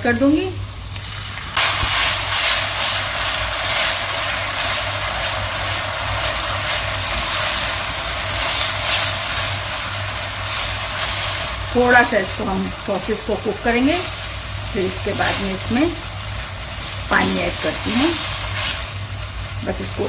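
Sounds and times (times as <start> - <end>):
sauce sizzling in hot oil: 0.0 - 20.0
spatula stirring in wok: 1.0 - 15.5, 16.1 - 19.6.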